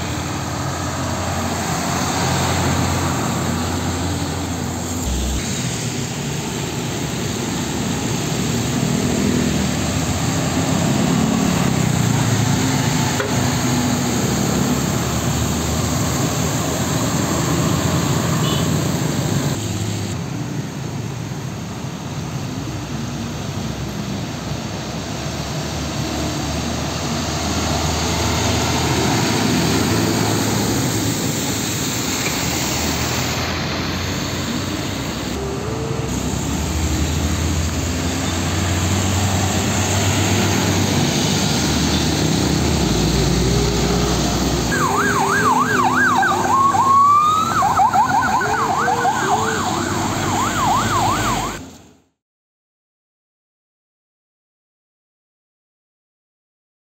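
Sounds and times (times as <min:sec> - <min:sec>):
motorcycles passing: 0:00.0 - 0:20.2, 0:25.0 - 0:51.6
diesel trucks passing: 0:00.0 - 0:52.1
road noise on wet road: 0:00.0 - 0:52.2
siren yelping: 0:44.6 - 0:51.6.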